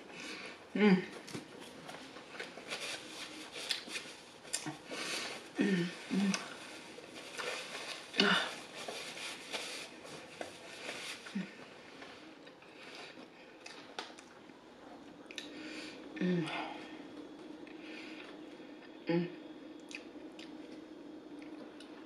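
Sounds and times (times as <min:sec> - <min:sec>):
paper napkin crinkling: 0:01.6 - 0:05.5, 0:06.5 - 0:11.6
person chewing: 0:03.6 - 0:05.0, 0:19.8 - 0:22.0.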